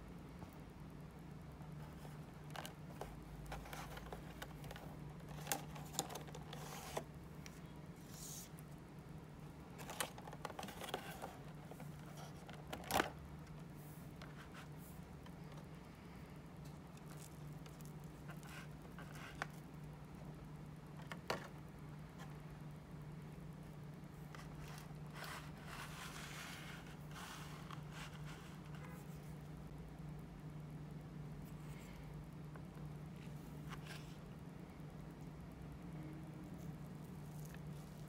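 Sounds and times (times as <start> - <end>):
plastic box crinkling and clicking: 2.5 - 7.0.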